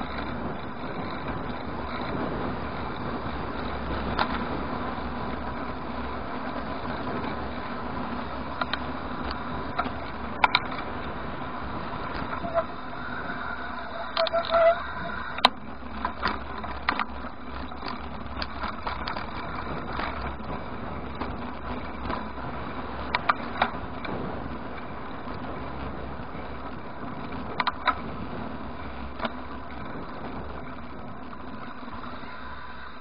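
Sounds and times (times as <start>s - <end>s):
bike clicks and knocks: 0.0s - 2.2s, 3.0s - 4.7s, 8.4s - 11.3s, 13.6s - 33.0s
road and wind noise: 0.0s - 33.0s.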